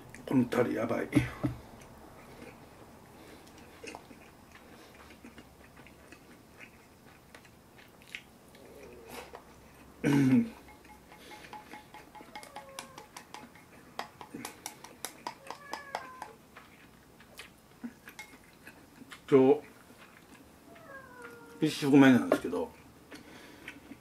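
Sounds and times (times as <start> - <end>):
chopsticks clicking on a bowl: 10.1 - 16.4.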